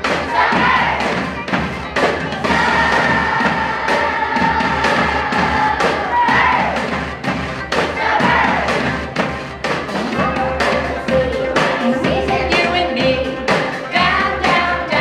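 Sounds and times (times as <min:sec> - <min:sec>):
children singing: 0:00.0 - 0:01.4, 0:02.0 - 0:06.9, 0:07.8 - 0:09.0, 0:10.0 - 0:15.0
steady drum beat: 0:00.0 - 0:15.0
upbeat song recording: 0:00.0 - 0:15.0.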